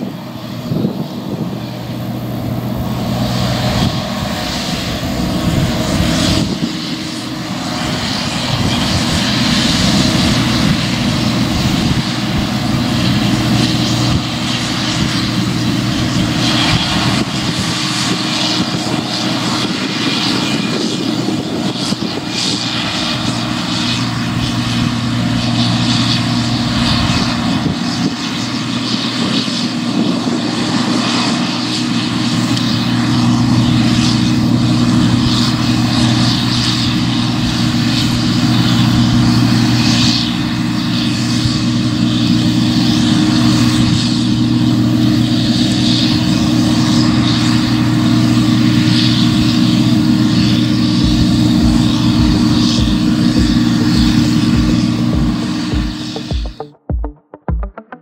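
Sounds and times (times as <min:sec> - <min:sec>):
broad rushing hiss: 0:00.0 - 0:56.3
combine harvester engine drone: 0:00.0 - 0:58.0.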